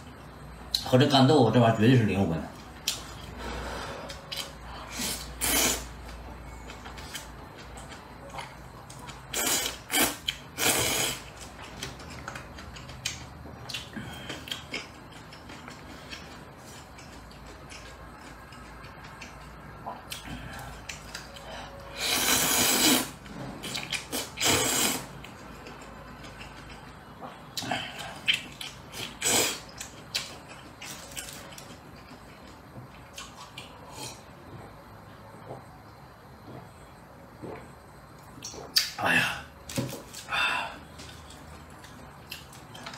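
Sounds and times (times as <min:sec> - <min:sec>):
wet chewing: 0:06.7 - 0:21.5, 0:23.6 - 0:34.1
noodle slurp: 0:09.3 - 0:11.3, 0:22.0 - 0:23.1, 0:24.0 - 0:25.1.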